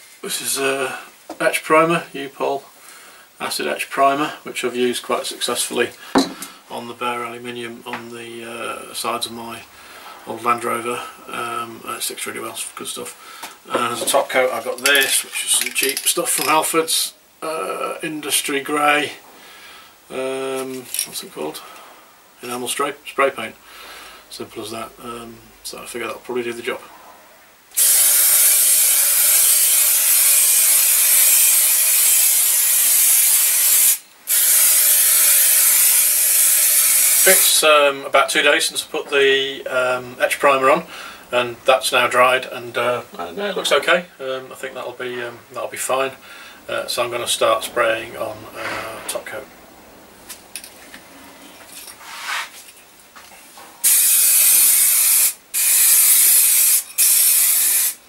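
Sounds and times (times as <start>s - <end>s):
aerosol spray can hissing: 27.8s - 37.5s, 53.8s - 58.0s.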